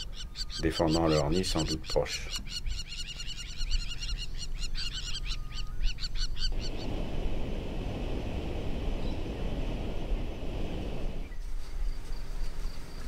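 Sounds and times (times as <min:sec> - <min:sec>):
shrill bird alarm calls: 0:00.0 - 0:06.8.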